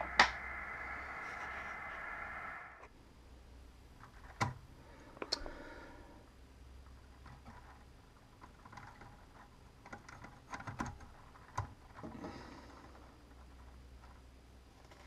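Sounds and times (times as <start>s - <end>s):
steady low hum: 0.0s - 15.0s
faint clicks and ticks: 6.2s - 15.0s.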